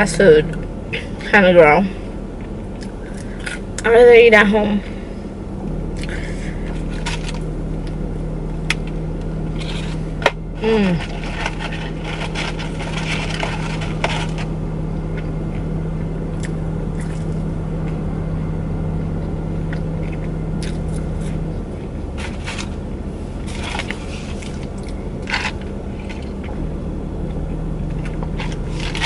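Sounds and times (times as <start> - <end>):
car cabin hum: 0.0 - 29.0
person chewing food: 19.2 - 21.6.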